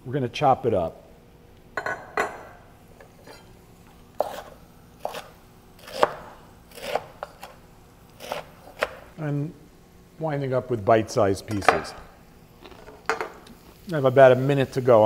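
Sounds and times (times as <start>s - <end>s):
knife chopping on wooden board: 4.2s - 7.6s, 8.2s - 9.0s.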